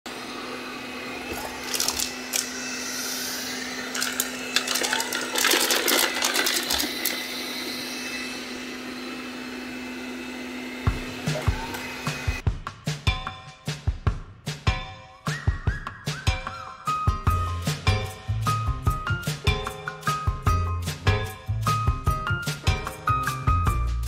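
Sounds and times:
robot vacuum motor hum: 0:00.1 - 0:12.4.

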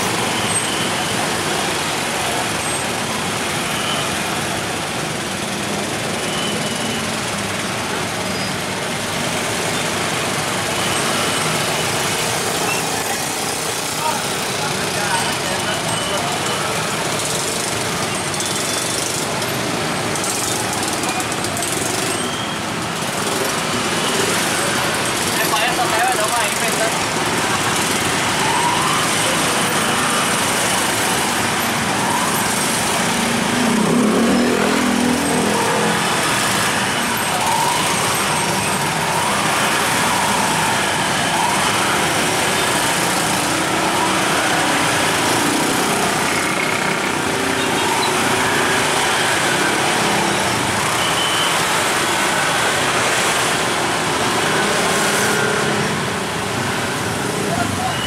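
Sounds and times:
street traffic: 0:00.0 - 0:58.0
engine revving: 0:32.6 - 0:41.1.

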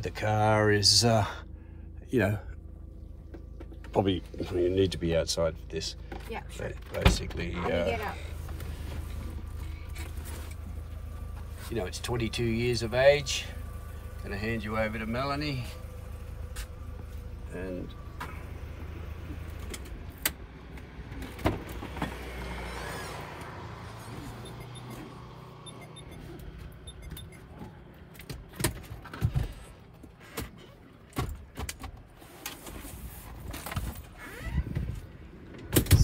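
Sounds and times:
steady low rumble: 0:00.0 - 0:21.1.

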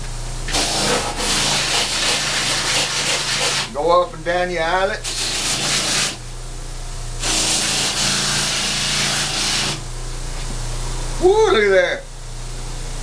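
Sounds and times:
grinder wheel scrubbing leather: 0:00.5 - 0:03.9, 0:05.0 - 0:06.2, 0:07.2 - 0:09.8.

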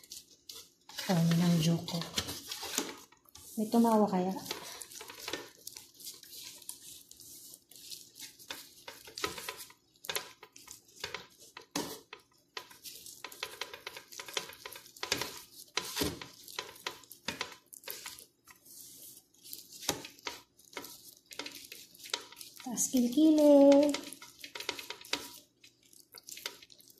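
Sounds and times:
plastic gloves crinkling: 0:00.0 - 0:26.9
squishing of sauce-coated skin: 0:04.4 - 0:23.1, 0:24.0 - 0:26.9.

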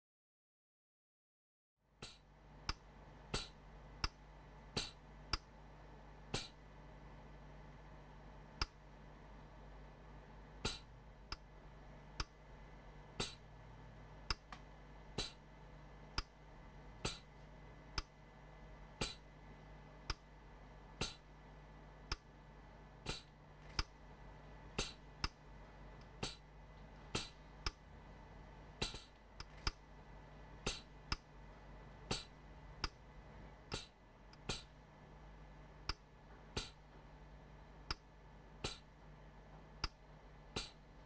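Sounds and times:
faint steady hum: 0:01.8 - 0:41.0
pneumatic dispenser clicks: 0:28.8 - 0:29.8.

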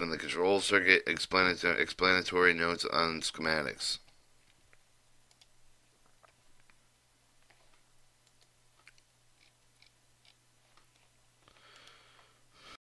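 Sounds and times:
computer mouse clicks: 0:05.3 - 0:05.5, 0:07.4 - 0:11.1
soft breath: 0:11.4 - 0:12.8.

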